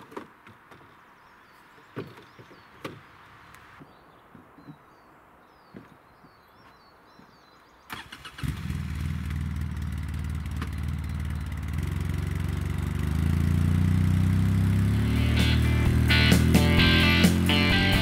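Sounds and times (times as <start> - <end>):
vehicle engine running: 8.2 - 18.0.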